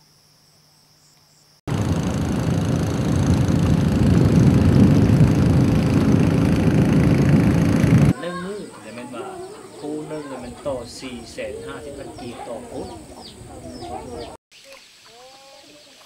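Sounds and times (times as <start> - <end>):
faint crickets chirring: 0.0 - 1.6
boat engine running: 1.7 - 8.1.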